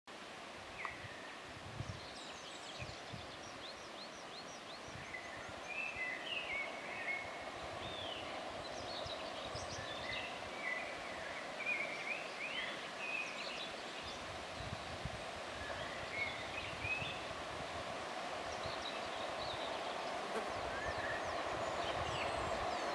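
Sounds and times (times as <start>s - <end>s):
songbirds chirping and whistling: 18.5s - 22.9s.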